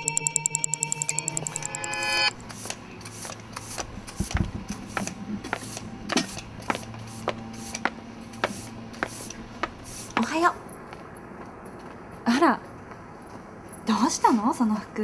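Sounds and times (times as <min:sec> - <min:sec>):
ringing alarm: 0:00.0 - 0:02.4
footsteps on pavement: 0:02.5 - 0:14.9.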